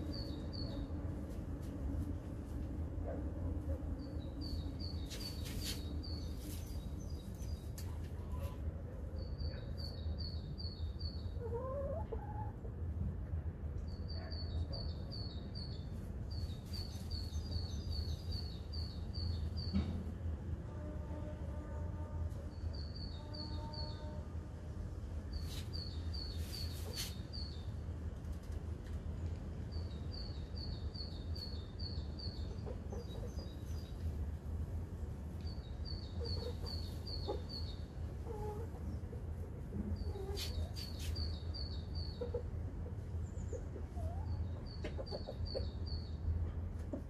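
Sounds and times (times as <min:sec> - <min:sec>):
hens clucking softly: 0:11.4 - 0:12.8, 0:38.2 - 0:40.9, 0:42.2 - 0:45.8
small bird chirping: 0:35.4 - 0:39.0.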